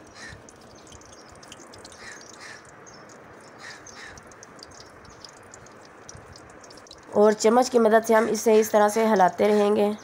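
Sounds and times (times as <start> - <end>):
crows cawing: 0.1 - 0.5, 1.9 - 2.8, 3.6 - 4.4.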